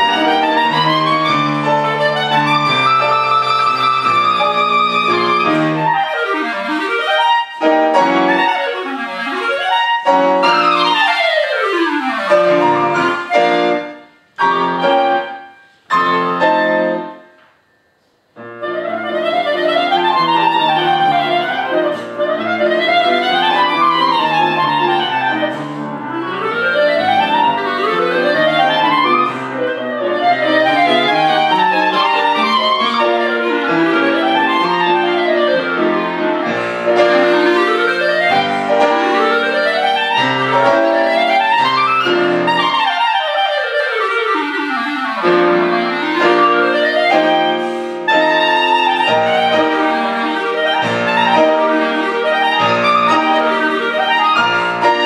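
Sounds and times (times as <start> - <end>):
clarinet: 0.0 - 17.4, 18.0 - 55.0
piano accompaniment: 0.0 - 55.0.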